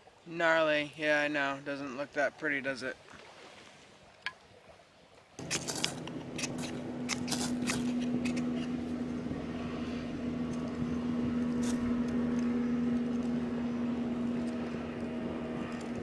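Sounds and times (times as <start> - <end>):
ferro rod rasping strikes: 5.4 - 9.0
blower fan humming: 5.4 - 16.0.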